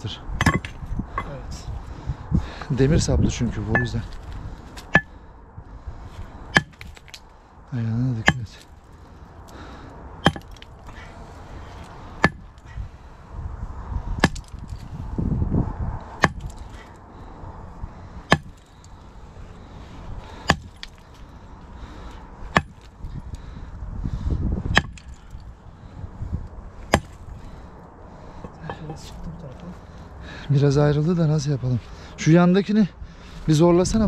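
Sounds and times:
sledgehammer striking rock: 0.4s - 1.3s, 4.8s - 5.1s, 6.5s - 7.2s, 8.2s - 8.7s, 10.2s - 10.8s, 12.2s - 12.5s, 14.2s - 14.8s, 16.2s - 16.7s, 18.3s - 18.7s, 20.4s - 21.0s, 22.5s - 22.9s, 24.7s - 25.4s, 26.9s - 27.2s.

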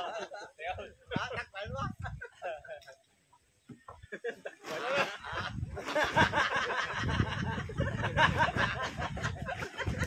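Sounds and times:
people laughing and shouting: 3.9s - 10.0s.

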